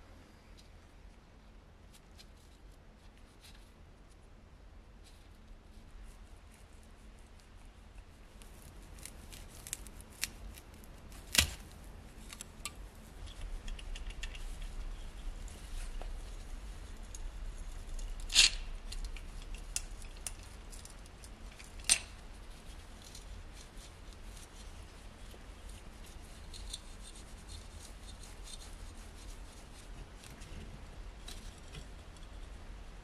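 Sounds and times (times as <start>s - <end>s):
small metallic clicks and scrapes: 6.5s - 28.8s, 31.2s - 32.6s.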